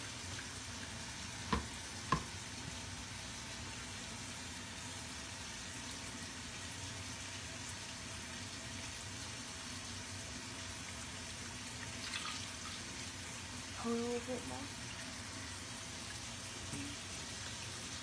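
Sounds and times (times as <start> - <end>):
water pouring from a jug: 11.8 - 12.8.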